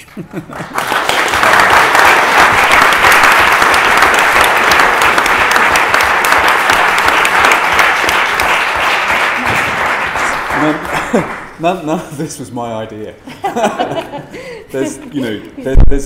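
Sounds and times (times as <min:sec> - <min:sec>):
audience applauding: 0:00.4 - 0:11.6.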